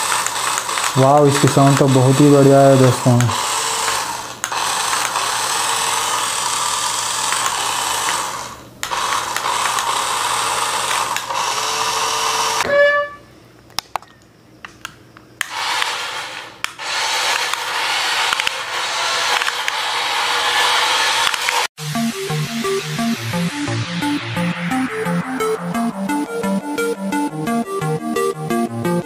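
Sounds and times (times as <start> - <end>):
toy car motor whirring: 0.0 - 12.6, 15.4 - 21.7.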